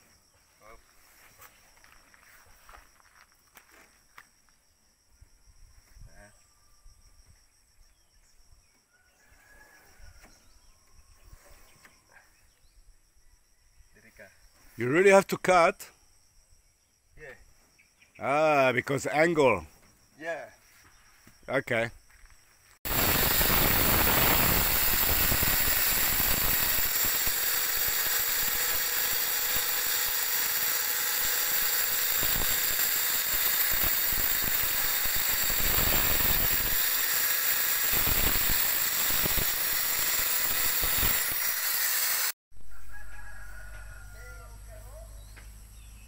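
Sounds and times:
angle grinder cutting sheet metal: 22.9s - 42.4s.

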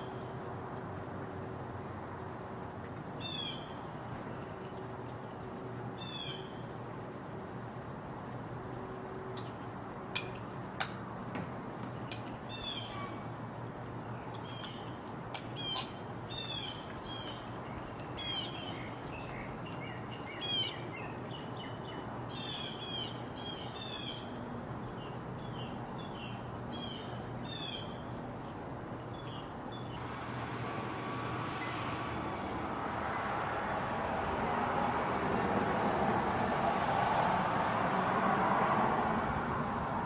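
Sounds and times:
birds whistling calls: 12.0s - 13.2s, 14.2s - 24.3s.

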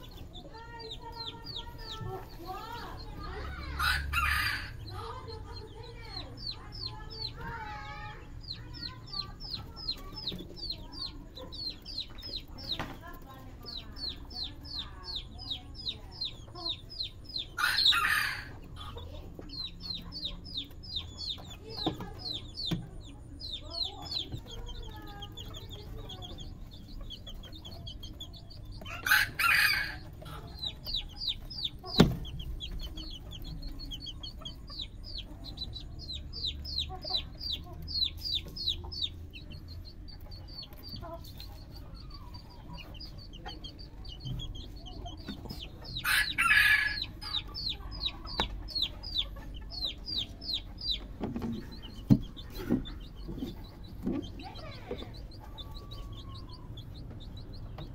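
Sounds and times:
chicks peeping: 0.0s - 57.9s
harsh raspy chicken calls: 1.1s - 5.2s, 17.2s - 20.2s, 28.8s - 32.0s, 45.7s - 51.1s.

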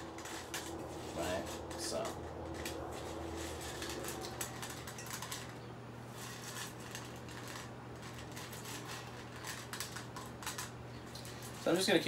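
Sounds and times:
dog food rattling in metal bowl: 0.0s - 12.0s.

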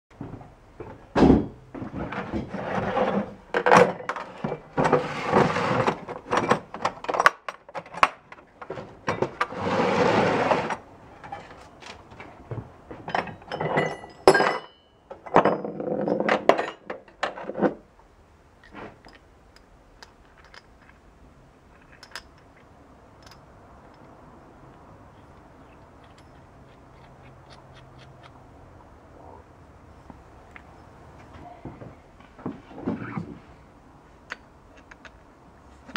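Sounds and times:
rattling and scraping: 0.2s - 17.9s.

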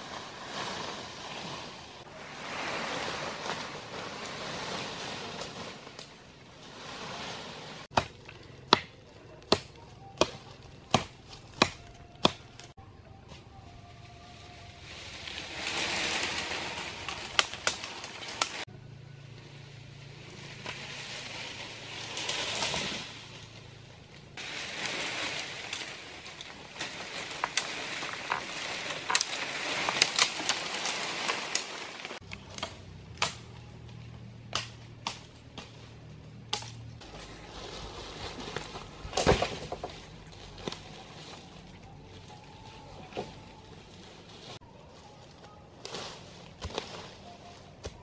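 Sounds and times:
dry leaves rustling: 0.0s - 48.0s
twigs snapping: 15.5s - 18.6s, 24.4s - 35.8s, 36.5s - 37.1s.

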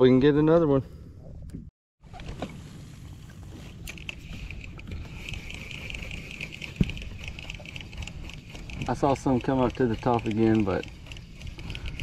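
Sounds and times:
fishing reel whirring rattle: 3.8s - 12.0s.

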